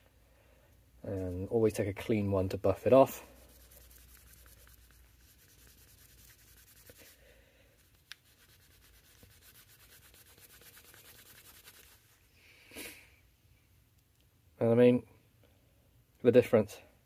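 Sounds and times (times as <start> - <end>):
cloth rubbing knife handle: 3.0 - 7.2.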